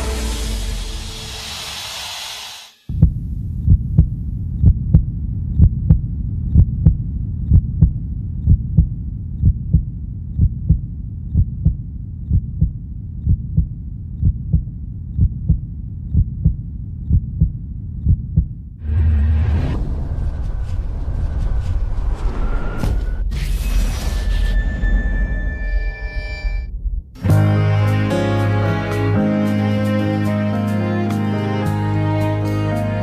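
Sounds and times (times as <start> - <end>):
deep swell: 0.0 - 2.9
heartbeat thumps: 2.9 - 18.8, 26.7 - 27.2
steady low hum: 2.9 - 22.3.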